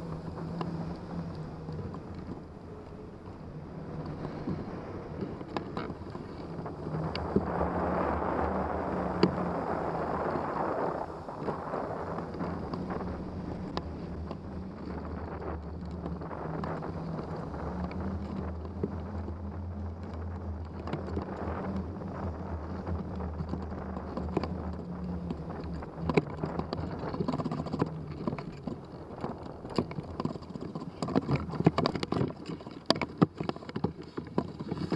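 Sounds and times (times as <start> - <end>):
low steady hum: 0.0 - 34.9
wind rushing past microphone: 0.0 - 34.9.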